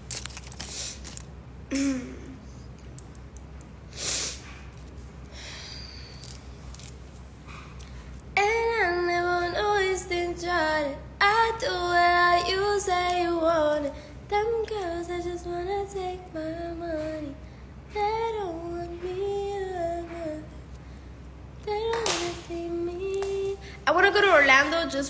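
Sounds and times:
woman singing unaccompanied: 8.4 - 20.6, 21.6 - 25.0.

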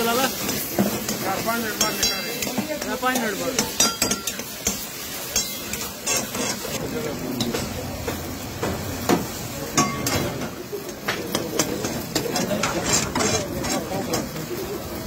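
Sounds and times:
food sizzling and bubbling: 0.0 - 15.0
metal lid and tongs clinking: 0.3 - 6.7.

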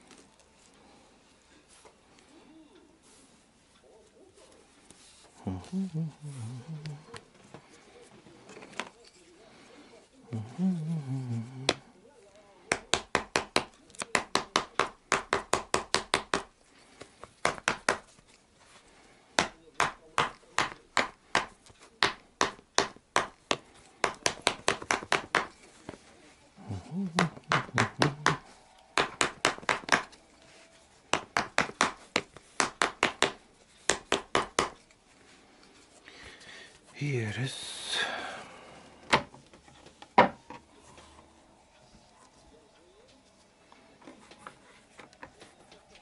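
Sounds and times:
small hammer tapping leather: 12.7 - 16.5, 17.2 - 18.2, 19.4 - 25.6, 27.1 - 30.2, 31.1 - 34.9.

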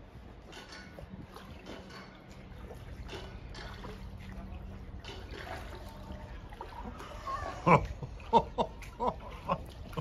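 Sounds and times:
water lapping: 0.0 - 10.0.

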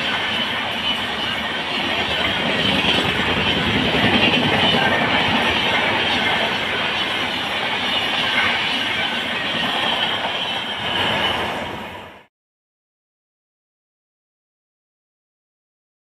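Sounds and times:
train wheels rushing on rails: 0.0 - 12.3.

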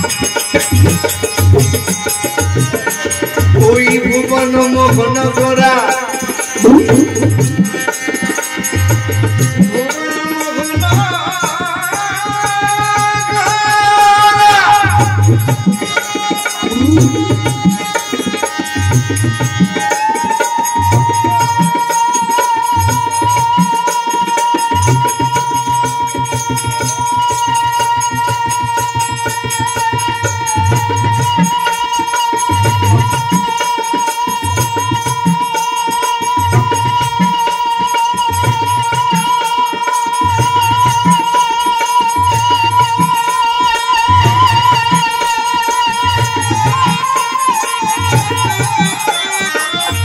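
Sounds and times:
hand drum beating: 0.0 - 13.9, 14.6 - 50.0
harmonium: 0.0 - 50.0
person singing: 2.7 - 7.4, 9.7 - 17.9.

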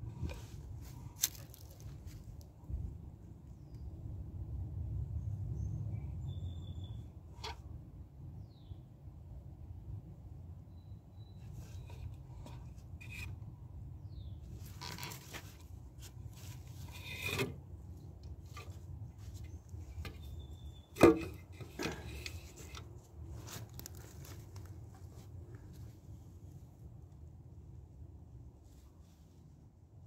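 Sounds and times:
wooden posts knocking on metal can: 21.0 - 22.8.

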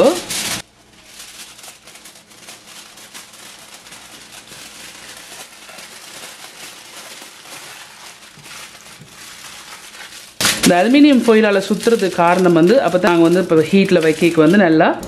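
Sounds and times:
aluminium foil crinkling: 0.0 - 15.0.

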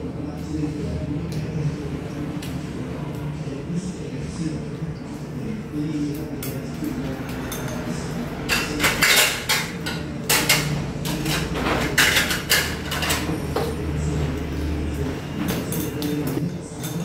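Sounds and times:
chopsticks clinking on porcelain bowl: 6.4 - 13.4.

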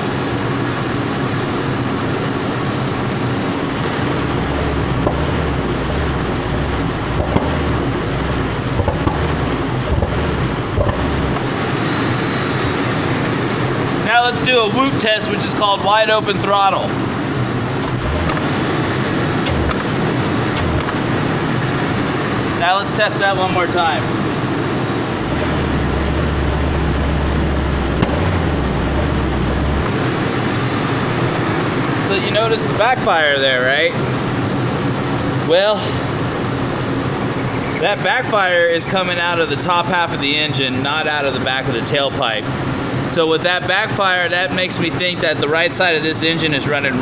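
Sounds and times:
car engine rumbling: 1.4 - 32.4, 34.0 - 40.5
engine backfire pop: 4.7 - 11.6, 17.8 - 18.6, 19.4 - 21.2, 25.0 - 30.1.

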